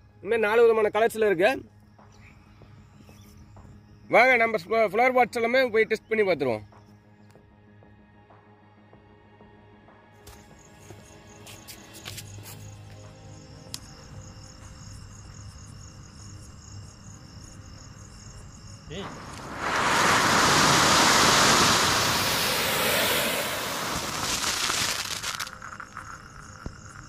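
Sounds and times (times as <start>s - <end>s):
firework spark fountain hissing: 18.9s - 27.0s.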